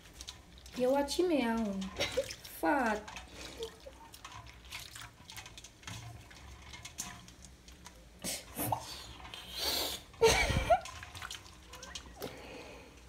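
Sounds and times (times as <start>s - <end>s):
hands sloshing in soapy water: 0.0s - 5.6s
water splashes and drips: 0.0s - 13.0s.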